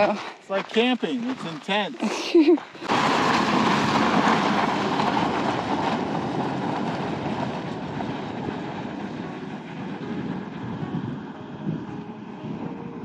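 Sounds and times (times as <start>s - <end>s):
tyres rumbling on gravel: 0.0s - 12.3s
car engine: 2.6s - 13.0s.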